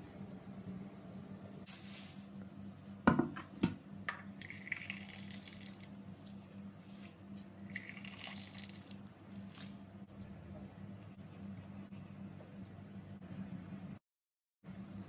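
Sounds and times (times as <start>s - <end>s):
steady low hum: 0.0s - 14.0s
grain pouring hiss: 1.7s - 2.3s
knocks against metal tray: 3.1s - 3.8s
water pouring onto grain: 4.4s - 6.4s, 7.7s - 9.8s.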